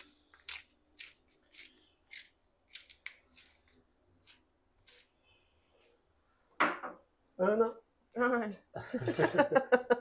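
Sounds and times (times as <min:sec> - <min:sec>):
pepper grinder rasping: 0:00.0 - 0:05.8.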